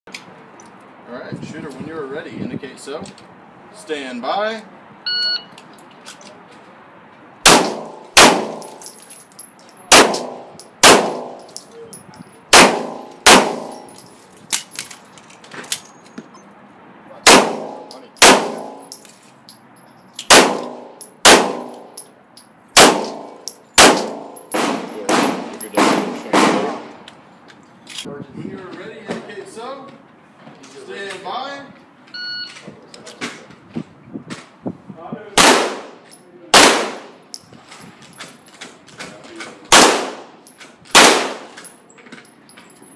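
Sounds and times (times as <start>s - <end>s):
pistol shots: 7.4s - 8.8s, 9.9s - 11.4s, 12.5s - 13.9s, 17.2s - 18.8s, 20.3s - 21.9s, 22.8s - 26.9s, 35.4s - 36.0s, 36.6s - 37.2s, 39.7s - 41.6s.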